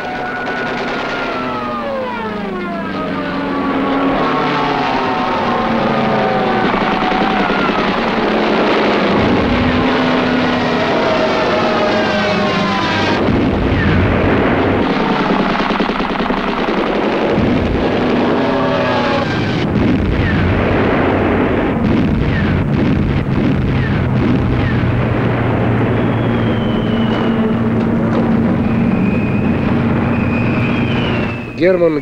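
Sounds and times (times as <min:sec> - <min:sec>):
warplane engines droning: 0:00.0 - 0:32.0
explosion: 0:04.1 - 0:31.4
falling bomb whistle: 0:25.8 - 0:32.0.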